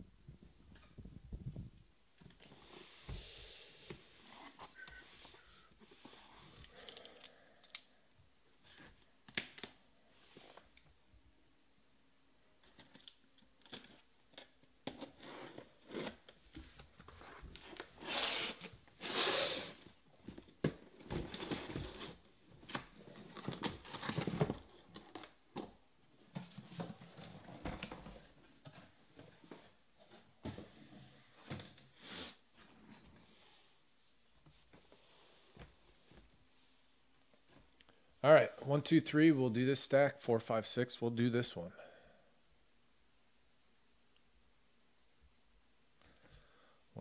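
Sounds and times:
packing tape tearing: 0:17.8 - 0:19.8
box cutter scraping tape: 0:18.0 - 0:19.8.

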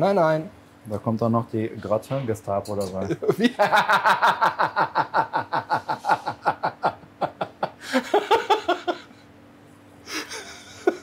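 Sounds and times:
man laughing heartily: 0:03.1 - 0:09.1, 0:10.1 - 0:11.0.

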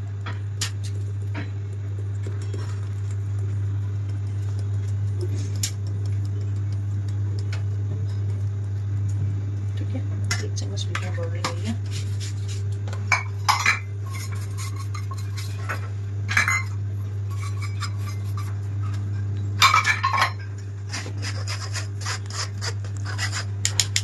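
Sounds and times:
steady low hum: 0:00.0 - 0:24.0
metal spoon scraping a sieve: 0:13.7 - 0:15.8, 0:17.3 - 0:18.6.

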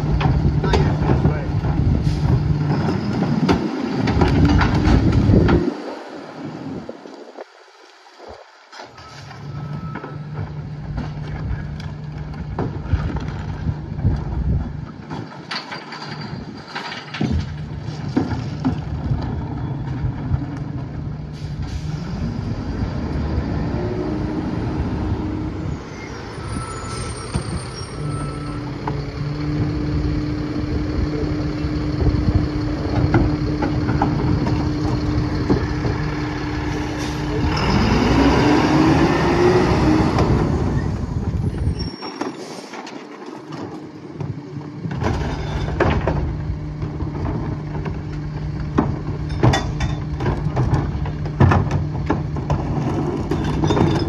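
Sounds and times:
garbage truck diesel engine running: 0:00.0 - 0:05.6, 0:09.4 - 0:42.6, 0:43.4 - 0:54.0
sharp knocks and clanks: 0:15.0 - 0:19.2, 0:32.8 - 0:36.1, 0:44.9 - 0:54.0.

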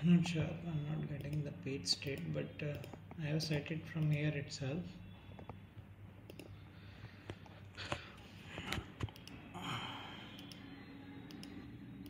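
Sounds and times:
computer mouse clicks: 0:01.2 - 0:04.4, 0:06.2 - 0:06.6, 0:07.2 - 0:09.5, 0:10.3 - 0:12.0.

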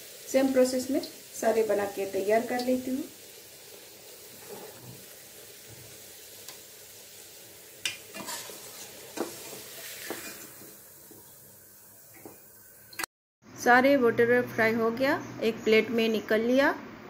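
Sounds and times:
dough sizzling in hot oil: 0:00.0 - 0:13.1.

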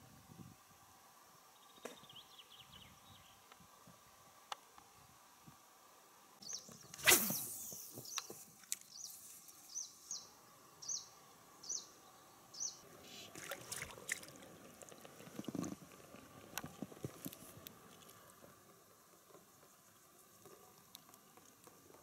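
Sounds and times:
fishing rod cast swish: 0:07.0 - 0:07.9.

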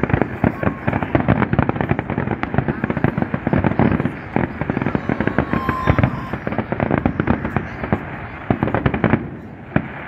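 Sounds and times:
fireworks bangs and crackles: 0:00.0 - 0:10.0.

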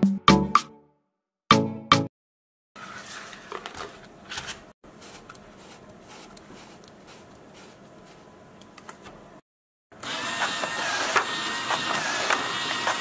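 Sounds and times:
small motors whirring and whining: 0:10.0 - 0:13.0.

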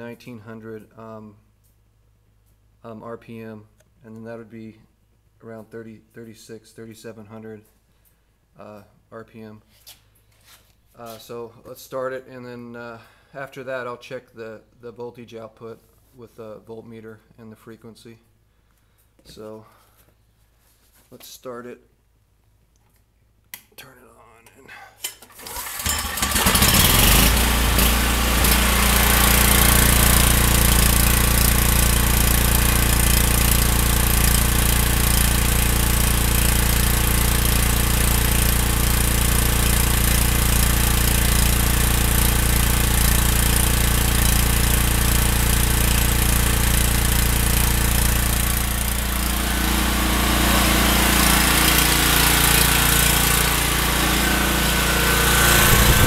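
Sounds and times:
generator engine running: 0:25.4 - 0:56.0.

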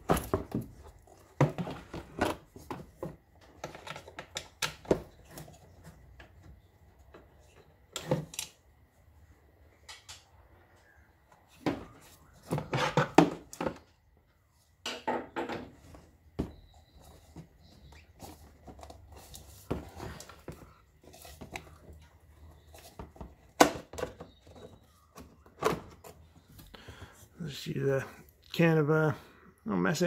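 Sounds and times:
plastic parts clicking and knocking: 0:00.0 - 0:08.6, 0:14.8 - 0:26.8.

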